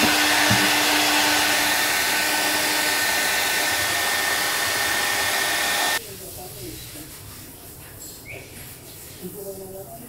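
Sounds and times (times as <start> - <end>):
hair dryer running: 0.0 - 6.0.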